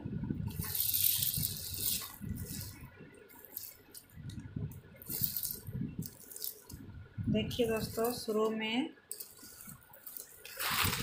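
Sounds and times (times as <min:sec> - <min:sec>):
craft beads rustling and rattling: 0:00.5 - 0:04.1, 0:05.0 - 0:06.8, 0:09.1 - 0:11.0.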